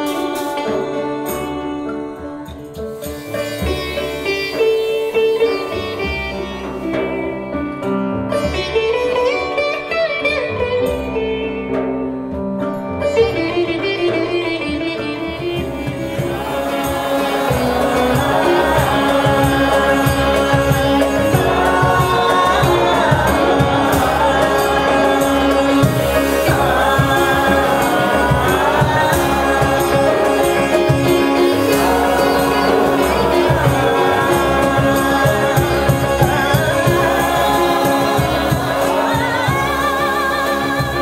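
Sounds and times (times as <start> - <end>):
woman singing: 0.0 - 6.2, 15.3 - 41.0
piano: 0.0 - 41.0
string instrument: 0.0 - 41.0
hand percussion and drums: 15.4 - 41.0.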